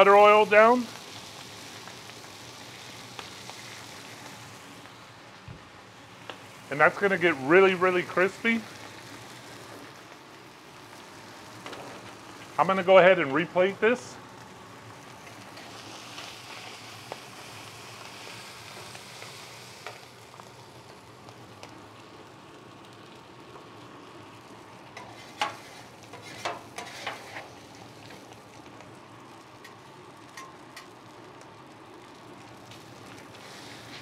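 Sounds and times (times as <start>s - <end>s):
fish sizzling on griddle: 0.0s - 34.0s
metal spatulas scraping griddle: 25.0s - 27.5s.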